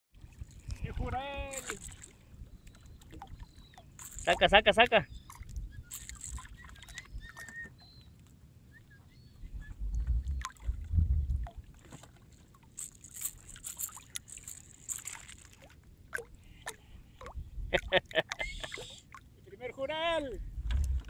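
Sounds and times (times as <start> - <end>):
water lapping against kayak hull: 0.1 - 19.4, 20.4 - 21.0
low rumble: 9.5 - 11.7, 20.4 - 21.0.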